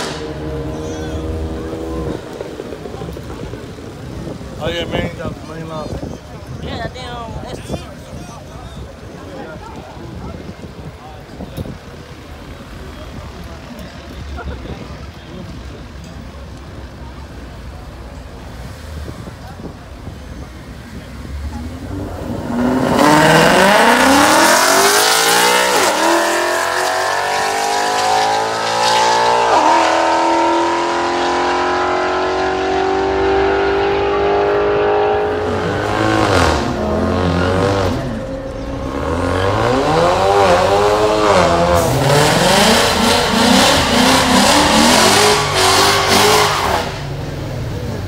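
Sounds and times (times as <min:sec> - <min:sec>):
drag cars accelerating: 0:00.0 - 0:48.0
engine revving: 0:21.4 - 0:47.2.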